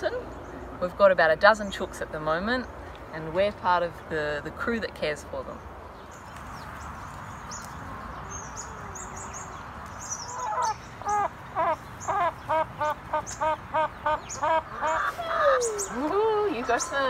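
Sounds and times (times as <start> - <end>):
hen calling loudly: 10.2 - 17.0.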